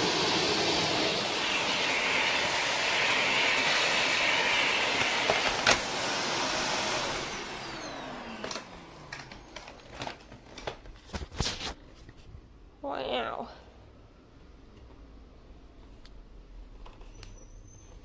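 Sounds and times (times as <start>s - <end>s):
vacuum cleaner running: 0.0s - 10.3s.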